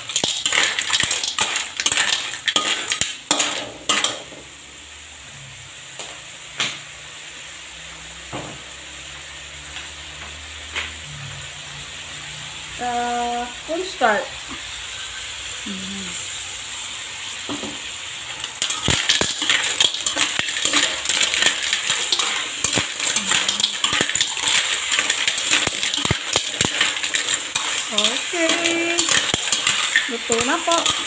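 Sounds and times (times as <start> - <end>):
shells clattering against a pan: 0.0 - 4.4, 18.3 - 31.0
clams sizzling in a wok: 0.0 - 31.0.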